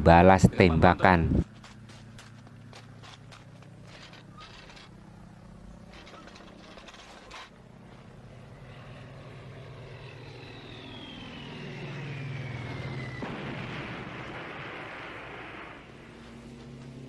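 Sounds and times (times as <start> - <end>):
warplane engine droning: 0.0 - 17.0
explosion: 13.1 - 16.2.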